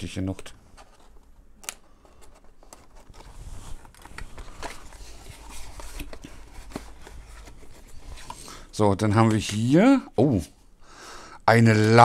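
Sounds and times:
handling cardboard box: 2.3s - 8.4s.

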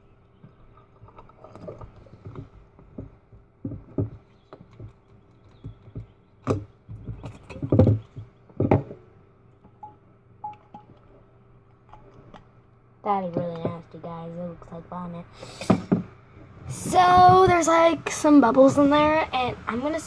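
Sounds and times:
glass bottle knocks and rattles: 7.0s - 9.0s.

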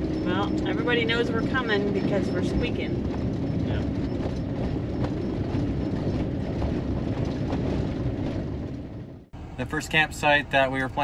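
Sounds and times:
wheel squeak: 0.0s - 7.8s.

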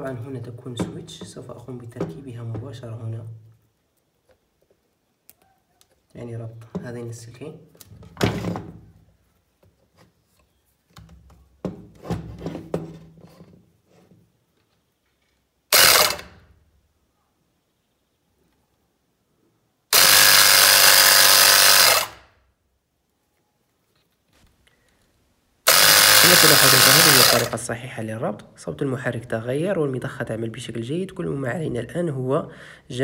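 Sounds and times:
electric air pump running: 15.7s - 16.4s, 19.9s - 22.2s, 25.7s - 27.6s.

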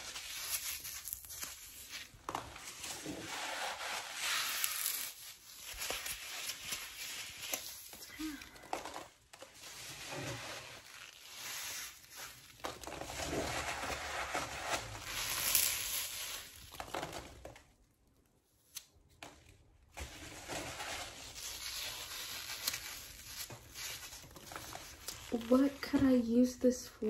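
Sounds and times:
foam packing peanuts crushed: 0.0s - 17.8s, 20.0s - 26.3s.

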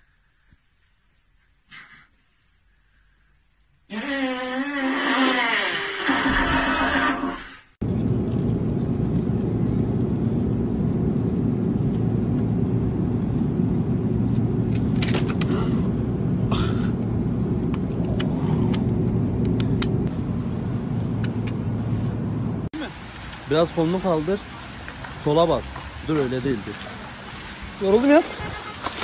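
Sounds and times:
airliner cabin drone: 7.8s - 22.7s.

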